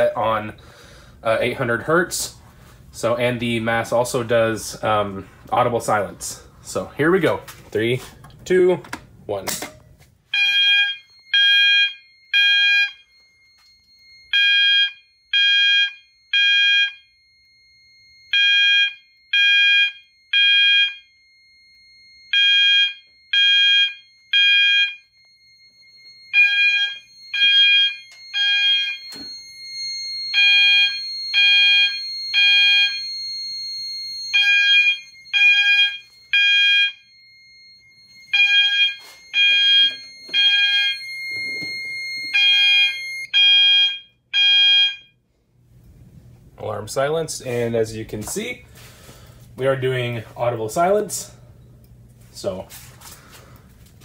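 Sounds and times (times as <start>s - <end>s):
fire alarm short tones: 10.3s - 45.2s
faint steady high tone: 25.0s - 36.3s, 37.0s - 43.2s.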